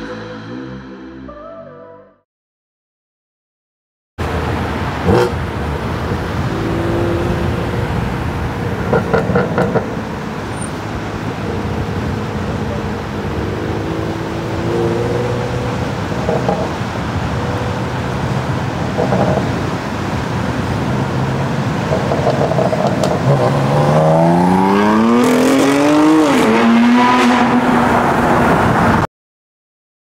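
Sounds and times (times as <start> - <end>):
exhaust pops and crackles: 8.9 - 10.0, 21.8 - 23.5.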